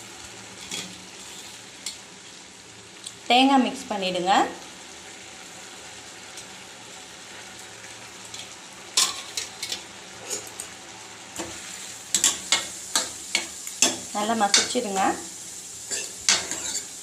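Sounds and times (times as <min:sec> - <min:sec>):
food simmering with steady hiss: 0:00.0 - 0:17.0
utensils clinking against pan: 0:08.3 - 0:10.5, 0:11.4 - 0:14.8, 0:15.9 - 0:16.9.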